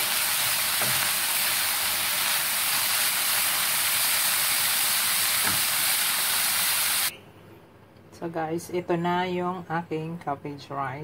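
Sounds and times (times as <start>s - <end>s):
cabbage sizzling in oil: 0.0s - 7.1s.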